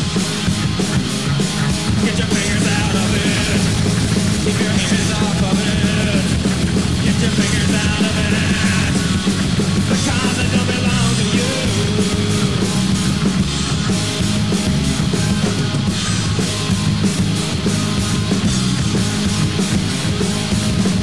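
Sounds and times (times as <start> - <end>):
heavy rock music with guitars: 0.0 - 21.0.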